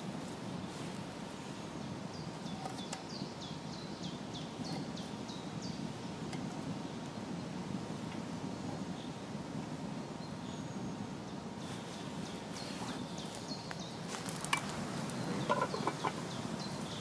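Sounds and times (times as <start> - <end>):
wood fire crackling: 11.6 - 17.0
metal tin clinking: 15.4 - 16.2.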